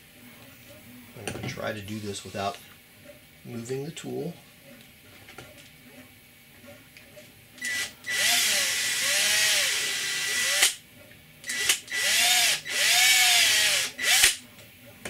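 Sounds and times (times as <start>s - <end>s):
cordless drill boring holes: 7.6s - 10.8s, 11.5s - 14.4s.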